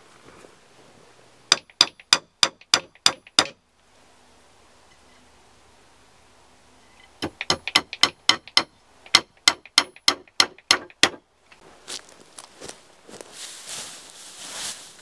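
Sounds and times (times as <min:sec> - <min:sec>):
hammer driving nail into wood: 0:01.5 - 0:03.6, 0:07.2 - 0:11.2.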